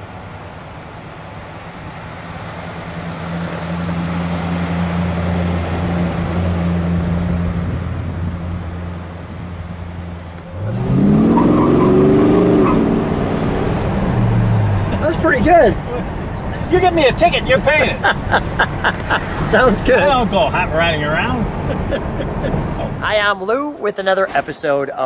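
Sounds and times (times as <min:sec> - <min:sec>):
car engine accelerating inside: 0:00.1 - 0:16.7
car engine driving past: 0:18.2 - 0:23.0.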